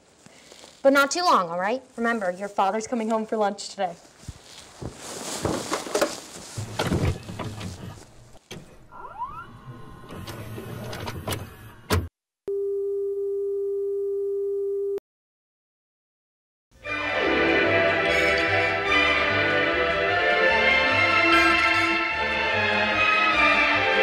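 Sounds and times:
shuffling and footsteps: 0.0s - 8.5s
rising squeak: 8.6s - 12.0s.

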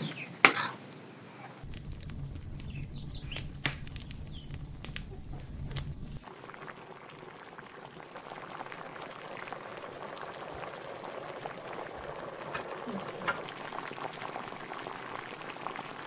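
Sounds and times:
low rumble: 1.6s - 6.3s
liquid bubbling in pot: 1.6s - 16.0s
wood fire crackling: 1.6s - 16.0s.

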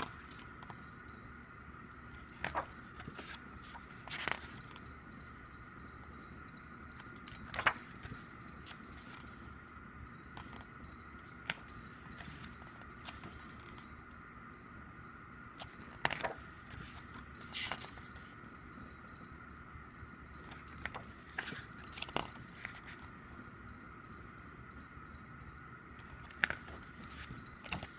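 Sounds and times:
faint hum: 0.0s - 27.9s
pages being turned: 2.2s - 4.8s, 7.2s - 9.5s, 11.4s - 13.8s, 15.6s - 18.3s, 20.5s - 23.1s, 26.1s - 27.9s.

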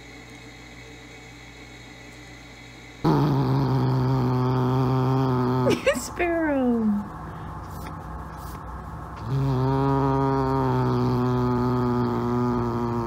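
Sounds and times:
cat growling: 3.0s - 5.9s, 9.2s - 13.0s.

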